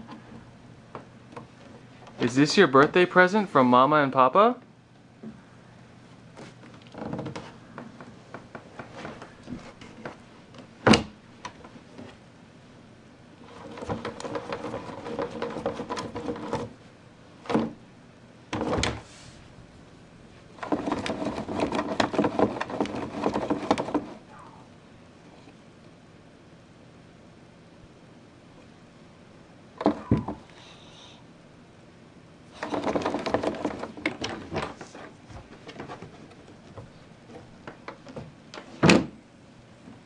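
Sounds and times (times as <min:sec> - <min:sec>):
plastic knocks and thunks: 0:06.9 - 0:12.1, 0:13.6 - 0:16.8, 0:17.4 - 0:17.8, 0:18.5 - 0:19.0, 0:29.8 - 0:30.5, 0:32.6 - 0:39.2
plastic wheels rumbling on floor: 0:13.4 - 0:16.8, 0:20.5 - 0:24.2, 0:32.5 - 0:38.3.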